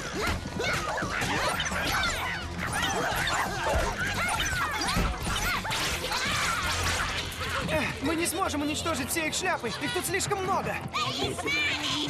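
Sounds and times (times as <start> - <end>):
creatures chattering and yipping: 0.0 - 12.0.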